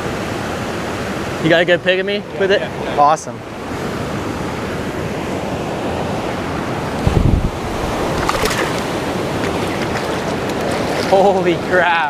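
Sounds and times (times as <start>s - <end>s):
river water rushing over spillway: 0.0s - 12.0s
light water splashes: 7.6s - 11.6s.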